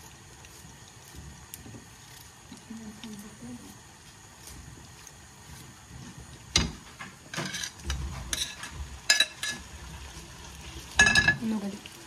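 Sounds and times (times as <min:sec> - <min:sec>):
metal utensils clinking: 0:07.3 - 0:09.7, 0:11.0 - 0:11.6.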